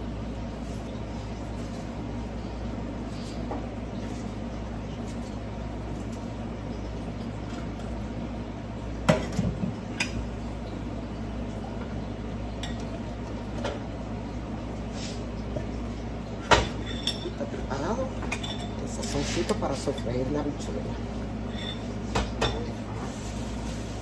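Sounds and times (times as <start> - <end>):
steady low hum: 0.0 - 24.0
utensils clattering on counter: 16.4 - 20.2.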